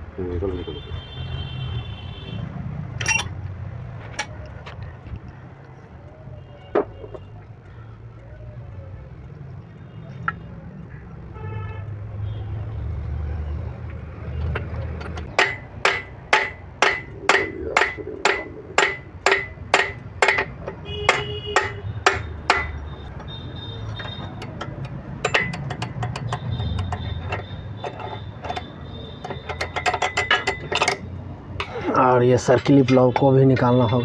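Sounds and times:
light ringing metal taps: 0:15.0 - 0:31.0
hammer striking steel punch: 0:15.4 - 0:20.5, 0:21.1 - 0:22.8.

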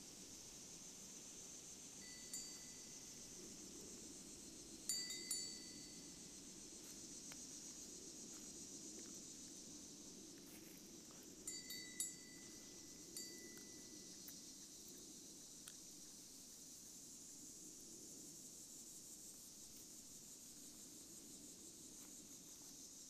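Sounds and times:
faint high hiss: 0:00.0 - 0:23.0
metal chimes ringing: 0:02.0 - 0:03.2, 0:04.9 - 0:06.3, 0:11.5 - 0:14.1.

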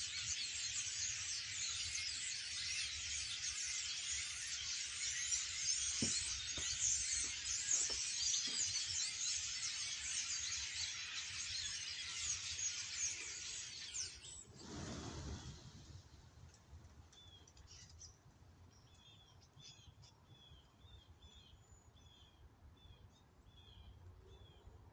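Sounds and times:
flock of songbirds chattering: 0:00.0 - 0:15.6.

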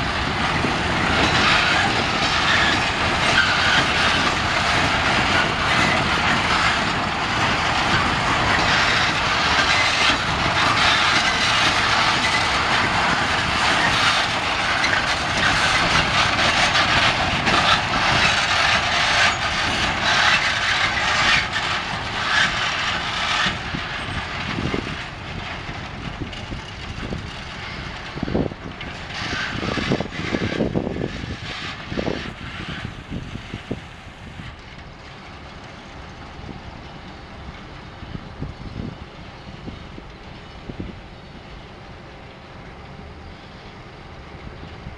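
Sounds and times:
train wheels clattering on track: 0:00.0 - 0:44.9.

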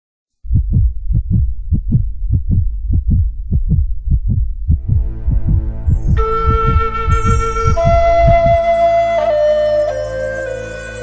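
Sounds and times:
deep heartbeat-like drum pulse: 0:00.5 - 0:08.7
held flute-like note: 0:05.9 - 0:11.0.

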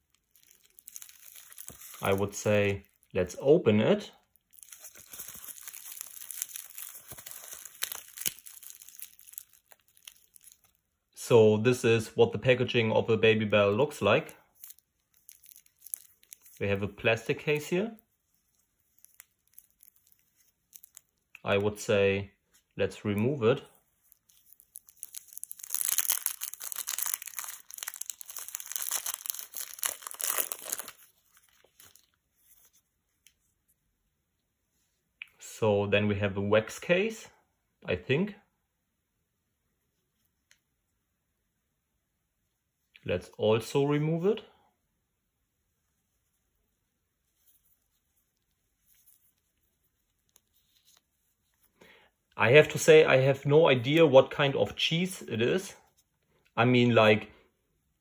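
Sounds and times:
plastic mesh bag crinkling: 0:00.0 - 0:03.2, 0:04.4 - 0:10.8, 0:14.5 - 0:16.8, 0:18.4 - 0:21.2, 0:24.0 - 0:32.8.

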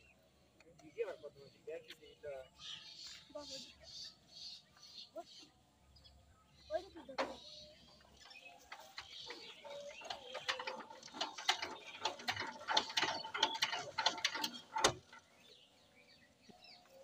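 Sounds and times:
metallic clicking and ratcheting: 0:08.2 - 0:15.4.

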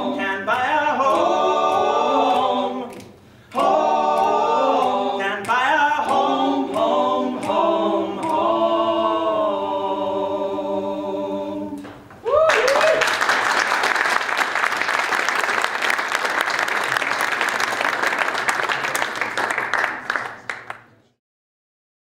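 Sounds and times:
men singing in close harmony: 0:00.0 - 0:11.9.

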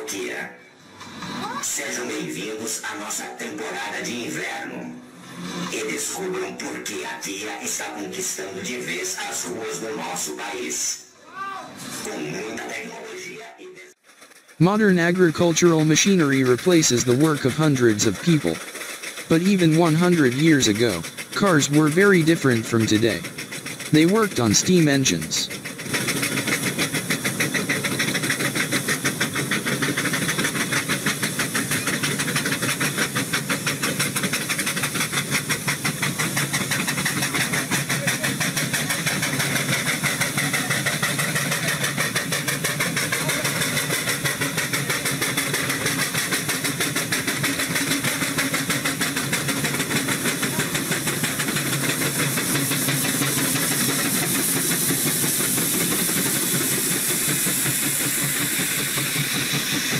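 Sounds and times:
steam engine exhaust chuffing: 0:00.7 - 0:10.8, 0:13.9 - 0:59.9
steady hiss of steam: 0:25.6 - 0:59.9.

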